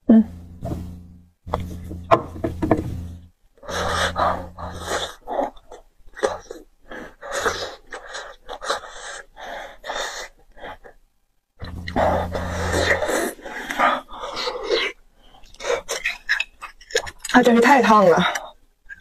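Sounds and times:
chewing: 13.7s - 19.0s.

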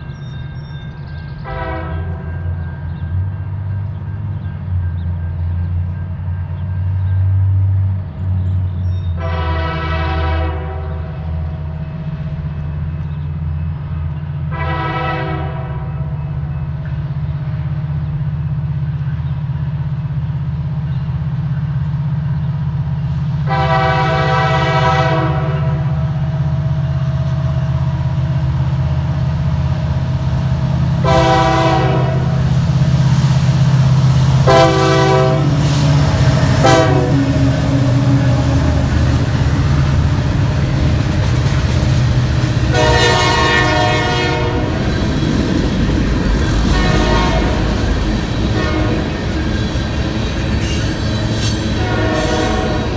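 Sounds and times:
locomotive air horn blasts: 1.4s - 2.4s, 9.2s - 11.3s, 14.5s - 16.1s, 23.4s - 26.0s, 31.0s - 32.4s, 34.4s - 39.4s, 42.6s - 44.9s, 46.6s - 49.3s, 51.7s - 52.9s
diesel engine rumble: 25.9s - 52.9s.

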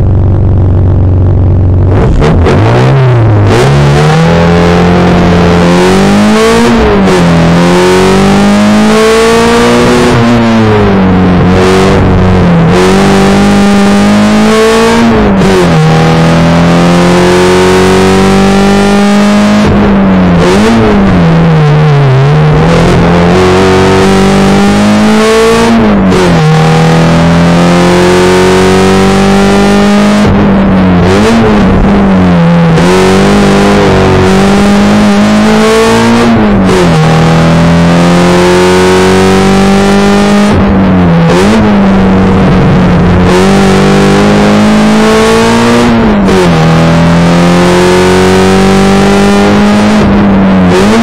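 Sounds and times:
car engine revving through gears: 0.0s - 51.0s.

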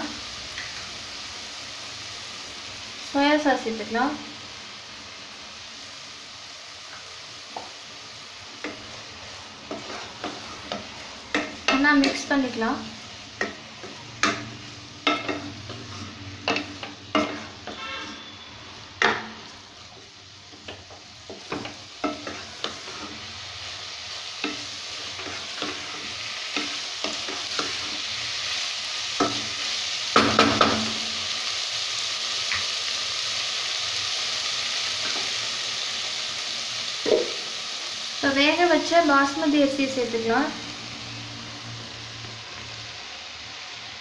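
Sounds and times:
vegetables sizzling: 0.0s - 44.0s
wooden spatula scraping a pan: 9.6s - 12.3s, 13.4s - 23.4s, 24.4s - 28.1s.

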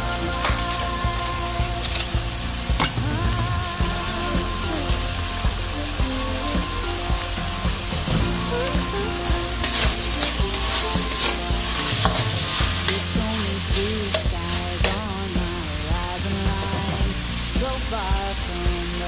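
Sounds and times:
chicken sizzling in a wok: 0.0s - 19.0s
metal spatula scraping a pan: 4.1s - 15.0s.

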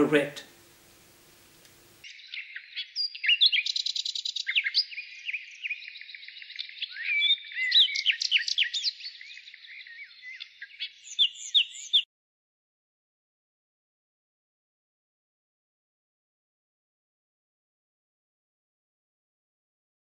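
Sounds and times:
birds chirping and singing: 2.1s - 12.0s.

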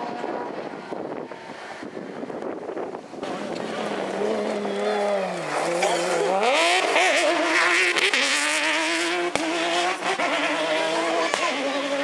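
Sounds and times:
buggy engine revving: 3.2s - 12.0s.

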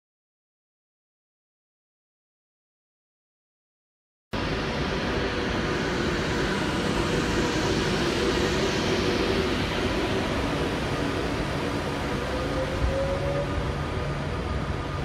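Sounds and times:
electric train humming and rumbling: 4.4s - 15.0s.

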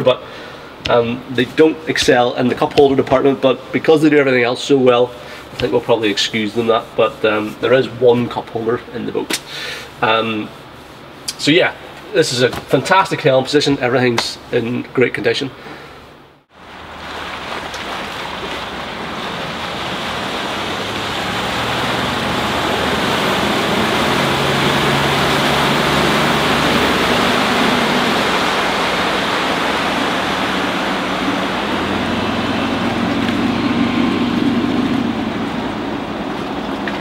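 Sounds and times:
boat engine drone: 16.5s - 37.0s
wake water rushing: 16.5s - 37.0s.

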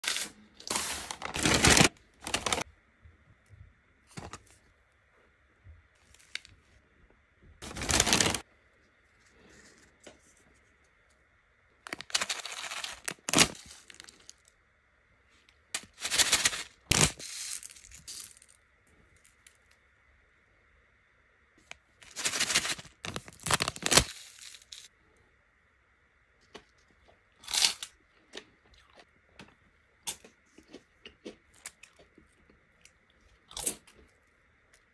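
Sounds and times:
paper packaging crinkling and tearing: 0.0s - 2.6s, 7.6s - 8.4s, 11.9s - 14.5s, 15.8s - 18.5s, 22.0s - 24.9s.

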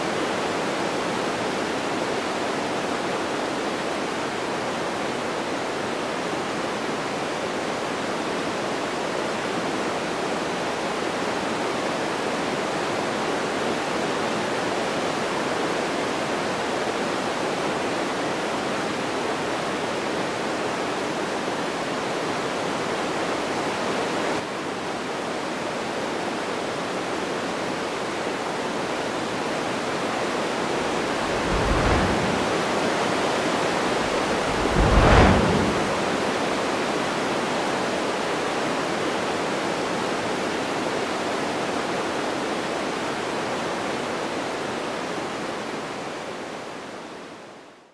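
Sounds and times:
wind rushing over microphone: 30.6s - 36.9s
deep buffeting thumps: 30.8s - 33.0s, 33.8s - 36.5s.

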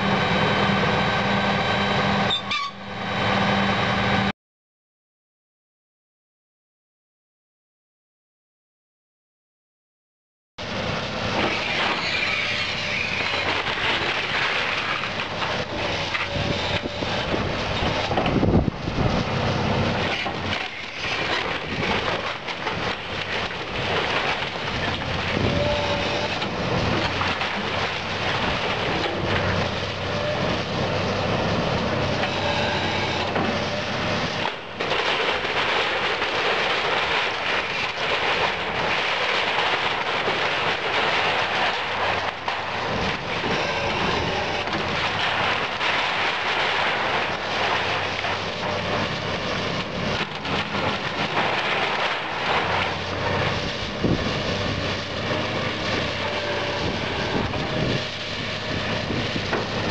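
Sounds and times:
excavator diesel engine under load: 0.0s - 4.3s, 10.6s - 59.9s
debris crashing down: 11.4s - 19.2s, 19.8s - 30.3s, 34.4s - 59.9s
timber cracking and splintering: 11.4s - 30.3s, 34.4s - 59.9s.

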